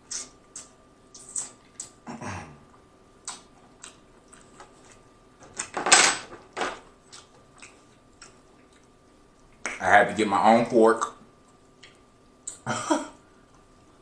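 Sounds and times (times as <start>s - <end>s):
lip smacks: 3.2s - 4.5s, 11.8s - 12.6s.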